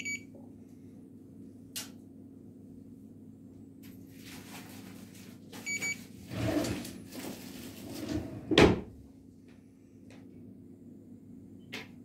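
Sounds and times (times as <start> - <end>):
steady low hum: 0.0 - 4.2, 6.0 - 12.0
rustling and scuffing: 7.0 - 8.1.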